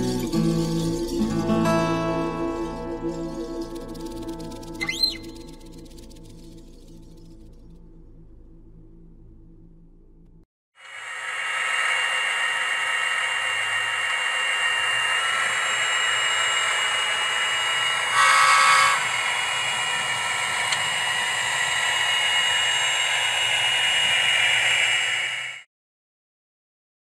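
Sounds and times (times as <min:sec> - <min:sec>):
model train diesel engine sound: 0:10.8 - 0:25.7
locomotive horn: 0:18.1 - 0:19.0.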